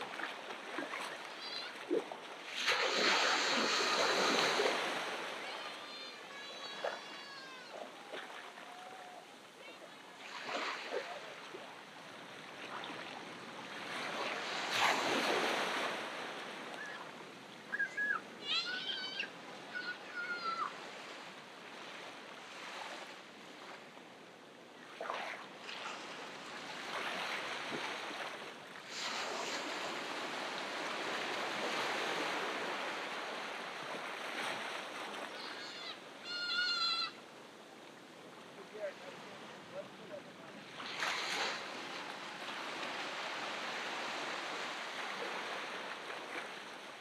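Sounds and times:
ocean surf breaking: 0.0 - 23.8, 25.8 - 47.0
short high-pitched calls: 35.4 - 37.1.

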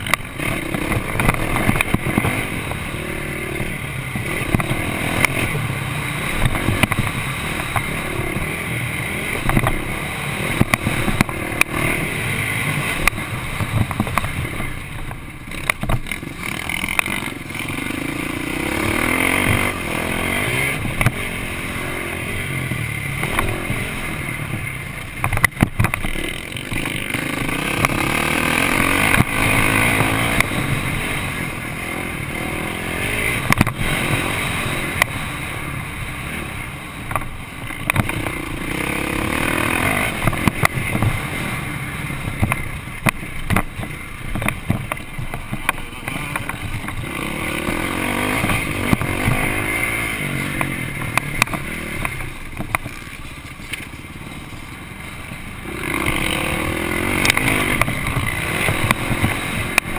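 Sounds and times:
motocross bike engine revving: 0.0 - 59.9
bike knocks and clatter: 9.4 - 9.9, 13.0 - 17.2, 24.5 - 27.2, 37.0 - 38.4, 42.4 - 47.2, 50.6 - 53.1.

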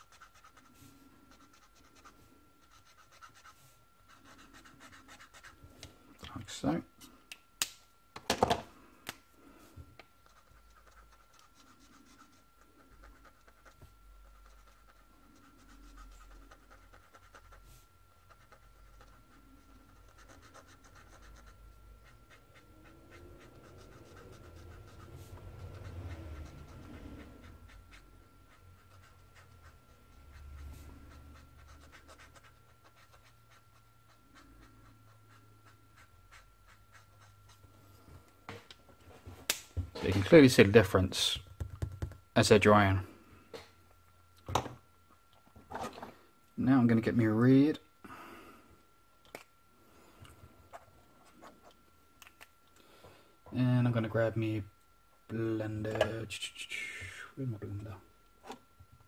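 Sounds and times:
marker scratching on paper: 0.0 - 5.6, 10.2 - 37.6
slow breathing: 48.0 - 48.8.

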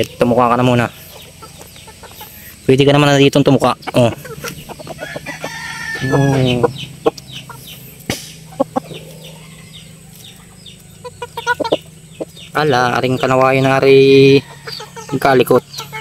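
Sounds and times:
chickens clucking: 0.0 - 16.0
rooster crowing: 4.7 - 7.0, 8.8 - 11.0, 13.8 - 15.4.

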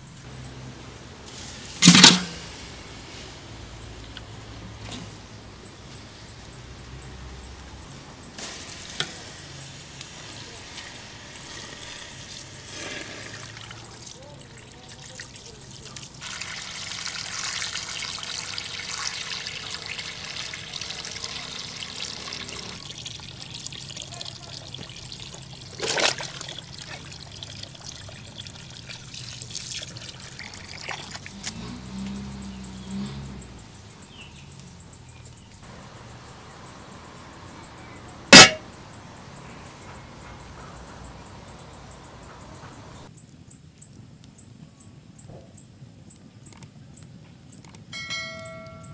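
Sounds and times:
metal lid clanging on pot: 1.8 - 2.4, 38.4 - 38.7
water splashing in a metal pot: 1.8 - 2.4, 8.4 - 31.6, 38.4 - 38.7
water running from a hose: 8.4 - 33.1.

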